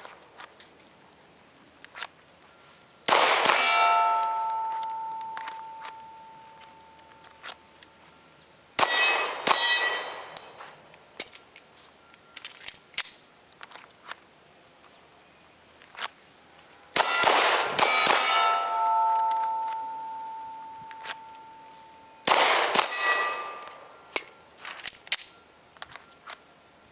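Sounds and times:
pistol shots: 3.1s - 4.8s, 8.8s - 10.4s, 17.0s - 19.6s, 22.2s - 23.8s
steel targets ringing: 3.3s - 7.0s, 8.8s - 10.6s, 17.0s - 24.4s.

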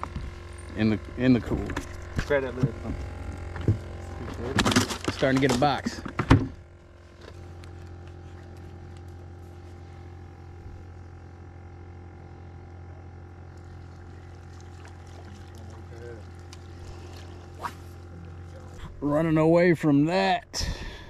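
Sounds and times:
boat engine humming: 0.0s - 21.0s.

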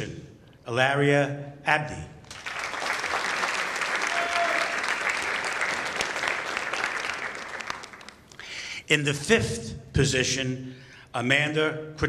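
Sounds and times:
audience applauding: 2.3s - 8.5s.

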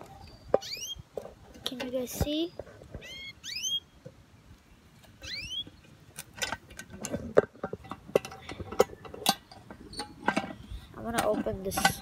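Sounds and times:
sharp clicks and knocks: 5.0s - 12.0s.

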